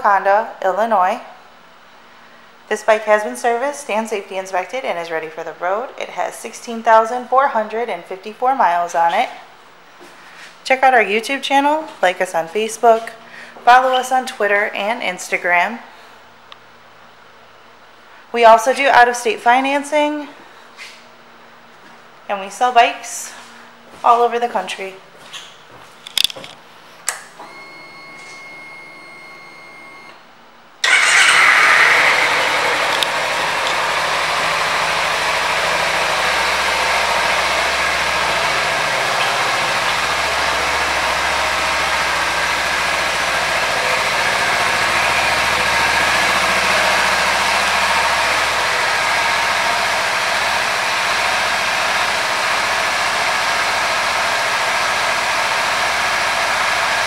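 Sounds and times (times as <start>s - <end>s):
motorcycle engine starting and idling: 30.8s - 57.0s.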